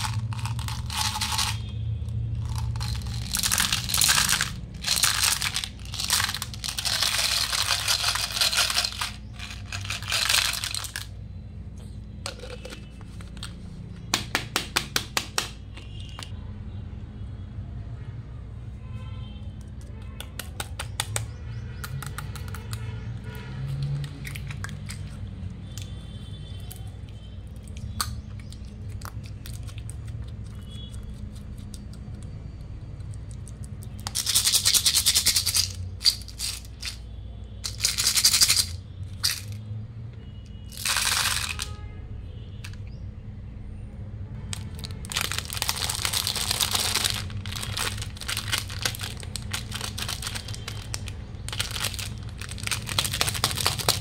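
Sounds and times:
slime squelching: 26.6s - 32.4s.

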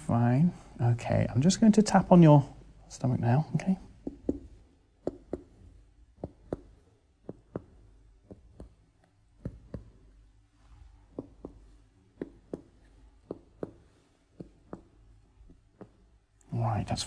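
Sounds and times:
finger tapping on belly: 4.0s - 5.5s, 6.2s - 8.8s, 9.4s - 9.9s, 11.1s - 16.0s.

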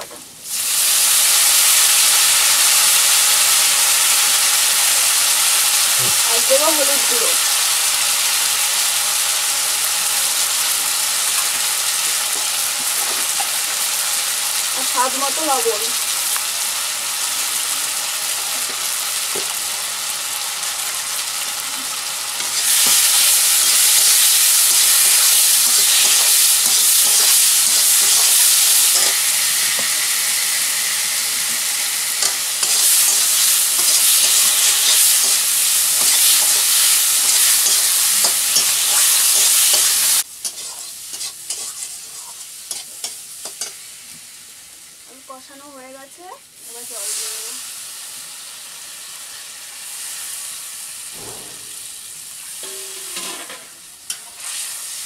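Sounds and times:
food sizzling in oil: 0.0s - 55.0s
metal spatula scraping pan: 24.8s - 30.0s, 32.2s - 43.8s.

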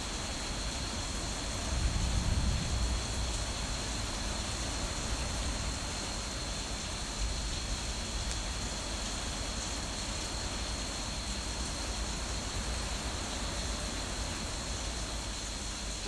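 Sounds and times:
heavy rain hiss: 0.0s - 16.0s
low thunder rumble: 1.5s - 5.7s.

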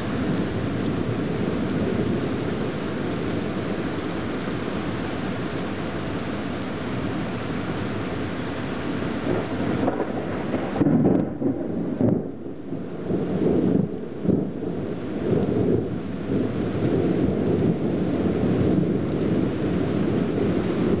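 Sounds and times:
rain falling: 0.0s - 21.0s
rolling thunder: 9.2s - 21.0s.

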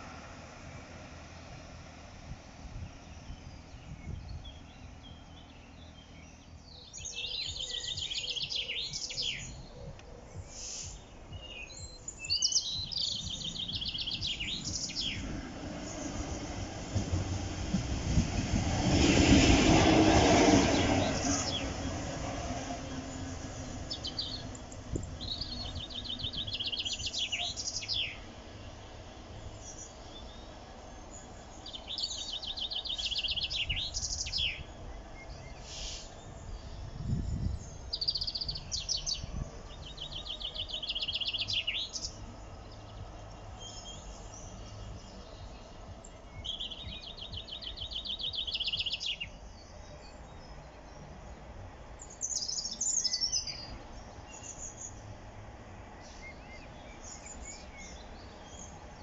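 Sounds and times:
songbird trilling: 3.2s - 16.3s, 23.1s - 28.3s, 29.4s - 50.6s.

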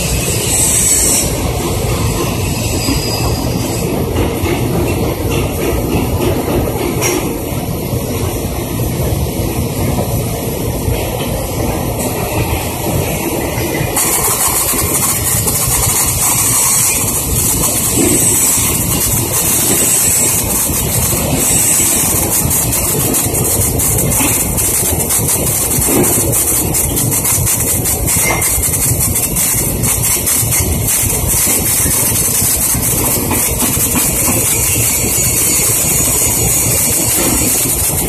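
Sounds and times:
welding arc crackling: 14.0s - 38.0s.

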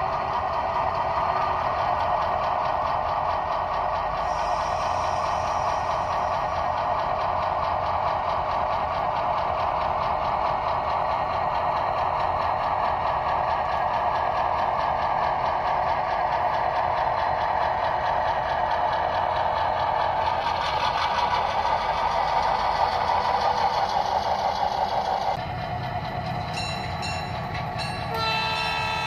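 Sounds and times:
model locomotive engine: 0.0s - 29.0s.

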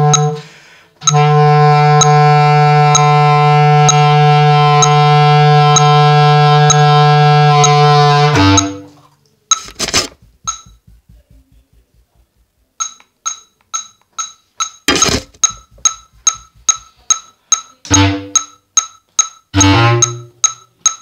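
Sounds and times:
metronome clicking: 0.0s - 8.9s, 9.5s - 9.8s, 10.4s - 11.1s, 12.3s - 21.0s
bass clarinet low notes: 0.0s - 9.0s, 17.9s - 18.4s, 19.6s - 20.4s.

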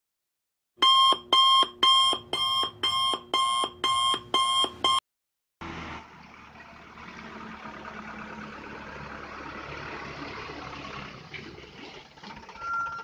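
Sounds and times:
electronic alarm beeping: 0.8s - 5.0s.

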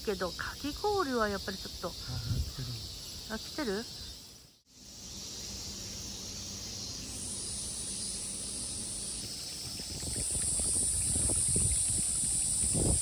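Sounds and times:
cicadas buzzing: 0.0s - 13.0s.

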